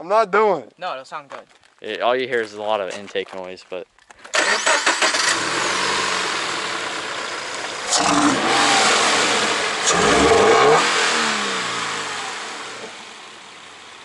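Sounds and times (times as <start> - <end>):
car engine revving intake roar: 4.4 - 14.0.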